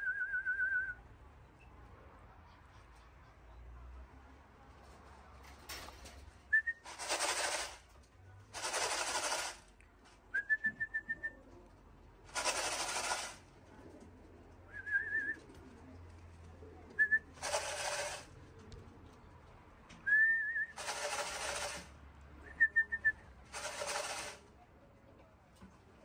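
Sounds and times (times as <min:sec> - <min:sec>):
dense hissing rattles: 0:12.3 - 0:13.4.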